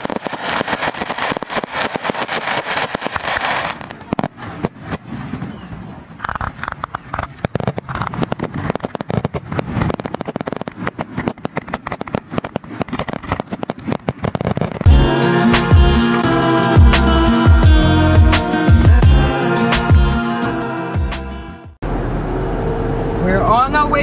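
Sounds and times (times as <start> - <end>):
fireworks popping and banging: 0.0 - 16.1
fireworks crackling: 0.0 - 21.6.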